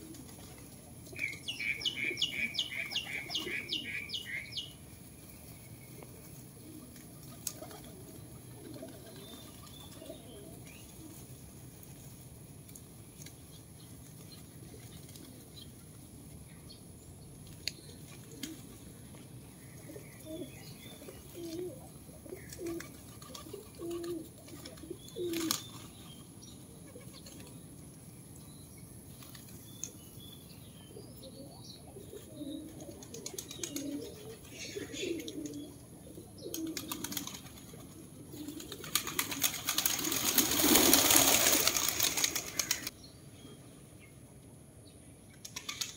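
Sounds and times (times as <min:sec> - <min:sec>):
wings flapping: 0:00.0 - 0:01.8, 0:05.1 - 0:15.6, 0:17.5 - 0:18.9, 0:22.4 - 0:26.0, 0:32.6 - 0:35.6, 0:36.4 - 0:43.0, 0:45.4 - 0:45.9
pigeons cooing: 0:00.0 - 0:04.6, 0:05.4 - 0:11.9, 0:17.7 - 0:27.6, 0:30.9 - 0:42.9
low background noise: 0:00.0 - 0:45.9.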